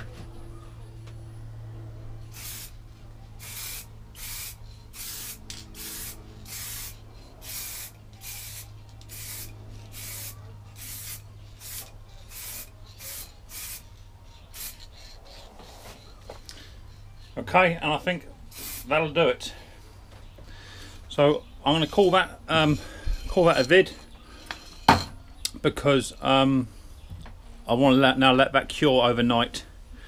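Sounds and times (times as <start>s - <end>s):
spray paint can hissing: 2.3s - 2.8s, 3.4s - 15.8s, 18.5s - 18.9s.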